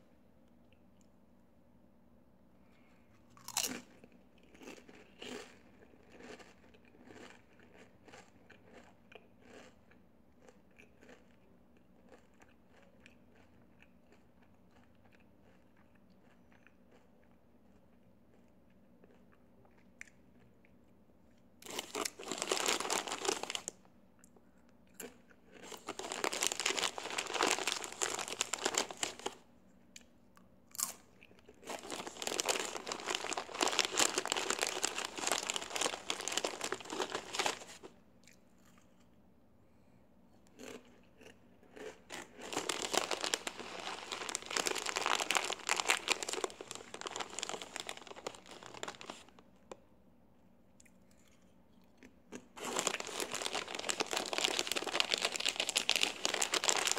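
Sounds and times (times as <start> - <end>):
tortilla chips crunching: 3.3 - 9.8, 10.4 - 20.7, 21.6 - 23.8, 24.9 - 29.4, 30.7 - 37.9, 40.6 - 49.4, 52.3 - 56.9.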